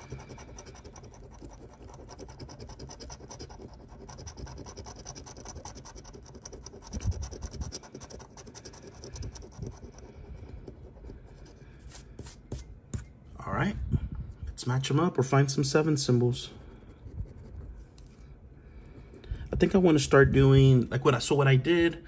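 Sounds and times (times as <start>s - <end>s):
scraper scratching lottery ticket: 0.0s - 11.3s.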